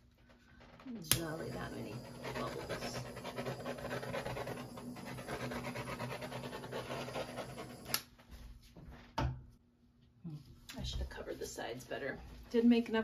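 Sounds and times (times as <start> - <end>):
heat tool blowing: 1.0 - 8.1.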